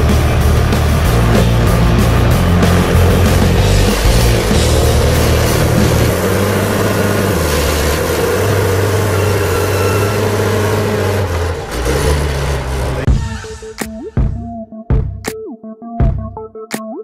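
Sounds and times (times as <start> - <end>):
diesel engine running under load: 0.0 - 13.4.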